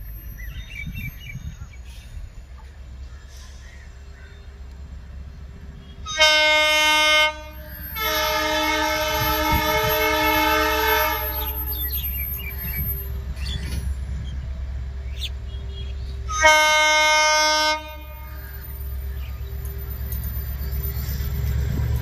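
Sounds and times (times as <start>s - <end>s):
locomotive horn blasts: 6.0s - 12.2s, 16.3s - 18.5s.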